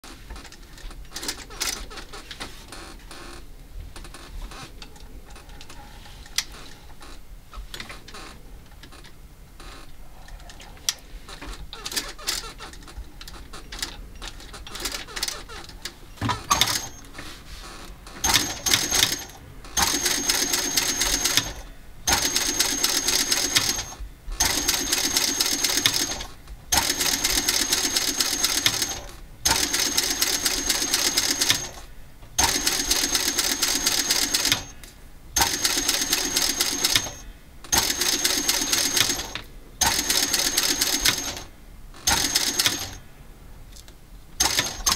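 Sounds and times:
sewing machine stitching: 14.4 - 17.1, 18.1 - 34.8, 35.4 - 43.0, 44.4 - 44.9
scattered clicks: 18.1 - 43.0, 43.7 - 44.9.

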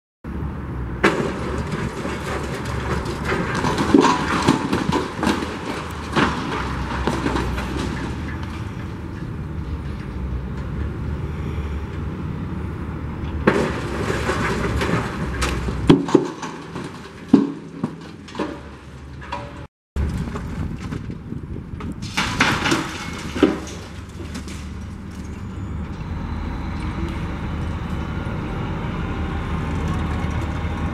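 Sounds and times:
debris crashing: 1.0 - 8.8, 13.3 - 25.5.

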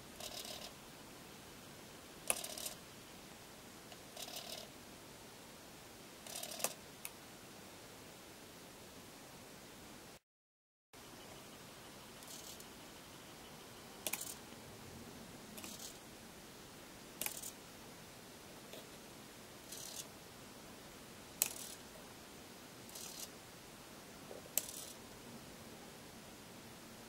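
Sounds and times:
soft high whirring rasp: 0.0 - 0.8, 2.3 - 2.8, 3.9 - 4.7, 11.0 - 14.6, 15.6 - 16.0, 19.6 - 20.2, 21.4 - 21.9, 22.9 - 23.4
sharp mechanism clicks: 14.0 - 14.4, 17.2 - 17.6, 21.4 - 21.8.

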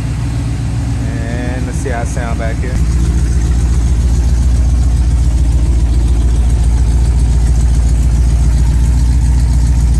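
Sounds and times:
pickup engine idling: 0.0 - 9.9.

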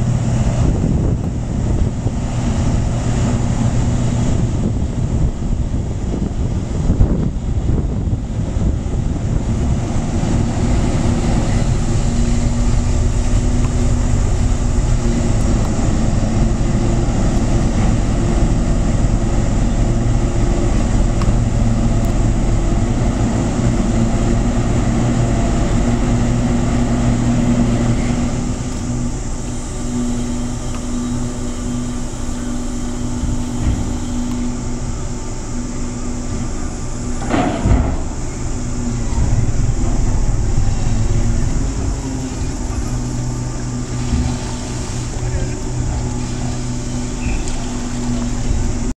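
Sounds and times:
diesel engines droning: 0.0 - 48.9.

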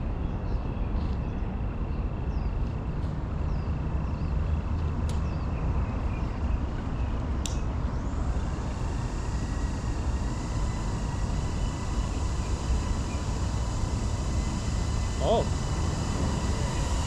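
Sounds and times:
faint steady tones: 6.3 - 17.0.

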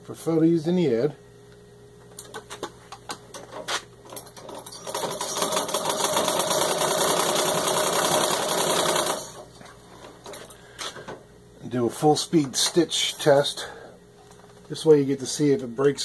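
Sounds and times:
sewing machine clatter: 4.1 - 9.4.

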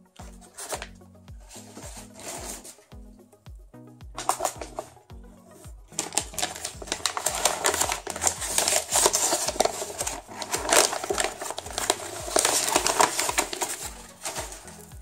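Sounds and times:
packing paper crinkling: 0.2 - 0.9, 1.5 - 2.8, 4.2 - 4.9, 5.9 - 15.0.

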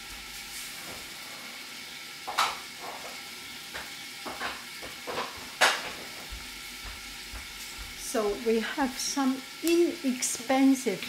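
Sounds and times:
vegetables sizzling in oil: 0.0 - 11.0
sharp pops in frying pan: 2.3 - 3.0, 3.7 - 6.0.

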